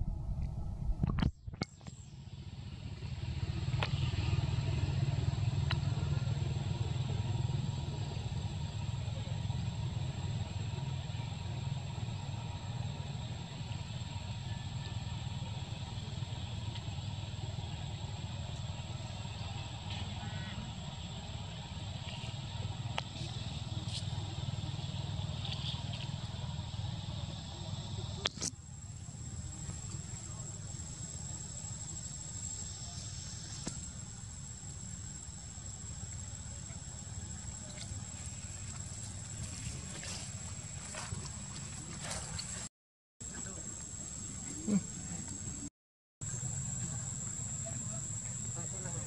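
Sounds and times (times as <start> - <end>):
low rumble: 0.0 - 1.4
low outdoor rumble: 0.0 - 49.0
insects droning: 1.2 - 42.6, 43.2 - 49.0.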